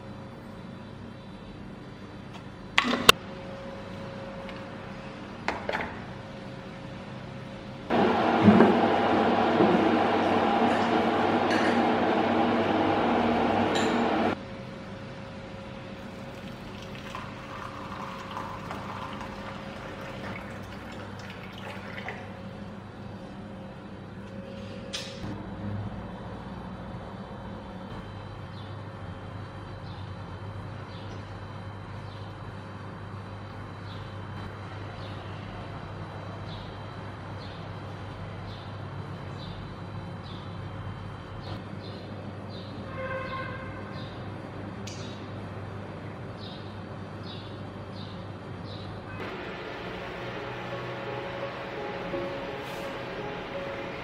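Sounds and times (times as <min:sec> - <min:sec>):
low outdoor hum: 0:00.0 - 0:54.0
electric kettle rumbling: 0:07.8 - 0:24.4, 0:49.2 - 0:54.0
water pouring into ceramic cup: 0:16.0 - 0:22.5.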